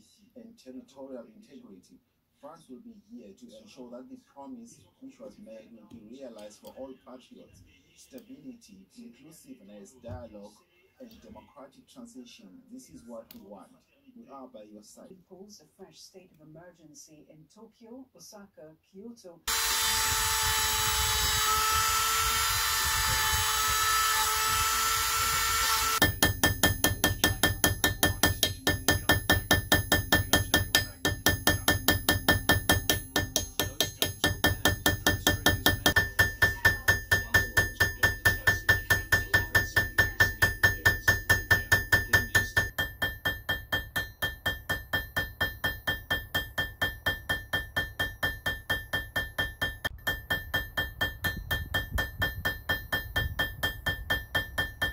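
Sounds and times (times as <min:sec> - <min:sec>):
rotary tool grinding whine: 0:19.5 - 0:27.1
hammer tapping on metal: 0:25.4 - 0:54.9.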